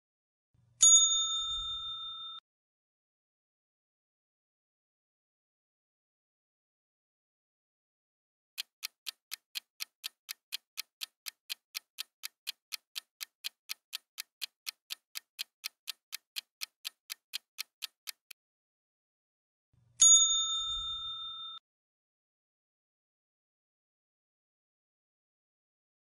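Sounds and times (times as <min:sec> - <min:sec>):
bell-like chime: 0:00.8 - 0:02.4, 0:20.0 - 0:21.6
countdown timer ticking: 0:08.6 - 0:18.4.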